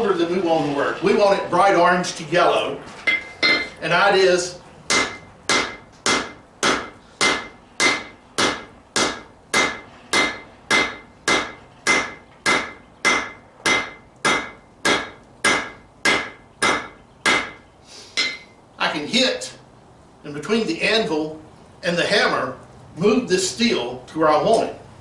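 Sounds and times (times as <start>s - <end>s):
hammer striking steel on anvil: 3.1s - 3.8s, 4.9s - 17.6s, 18.2s - 18.5s.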